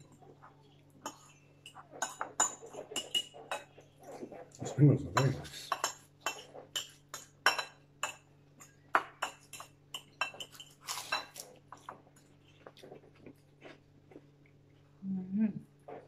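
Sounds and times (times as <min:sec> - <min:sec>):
cutlery clinking on plates: 0:00.9 - 0:12.9.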